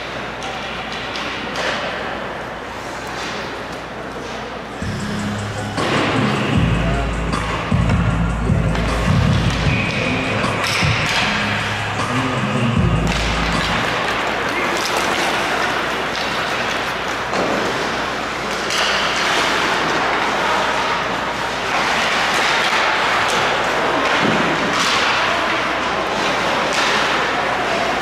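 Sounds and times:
hockey sticks and puck clacking: 0:00.0 - 0:04.8, 0:05.5 - 0:06.5, 0:07.4 - 0:28.0
skates scraping ice: 0:13.1 - 0:28.0.

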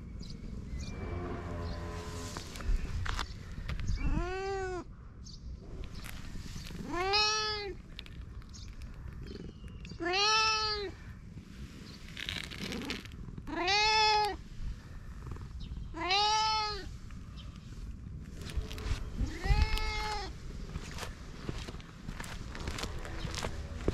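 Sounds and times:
cat meowing: 0:10.0 - 0:11.0, 0:13.5 - 0:14.4, 0:15.9 - 0:16.9, 0:19.2 - 0:20.3.

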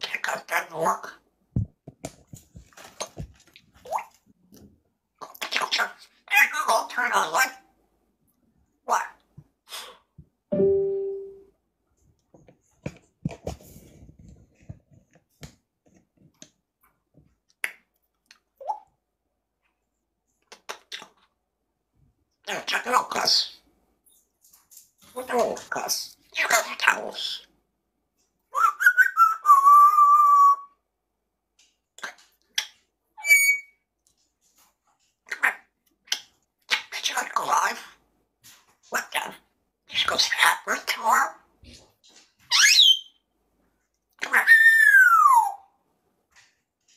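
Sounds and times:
short ringing tone: 0:10.5 - 0:11.4
parrot whistling: 0:33.2 - 0:33.8.

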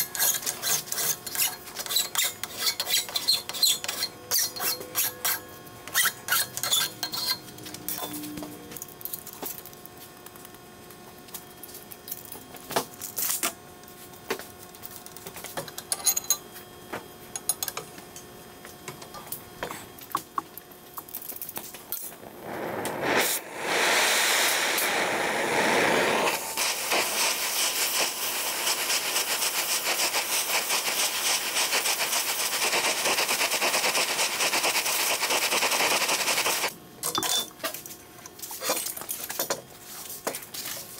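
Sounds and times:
torch flame hissing: 0:22.1 - 0:36.7.

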